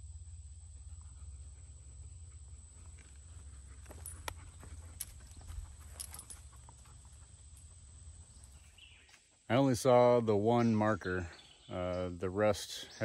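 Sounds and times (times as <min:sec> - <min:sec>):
low steady rumble: 0:00.0 - 0:08.9.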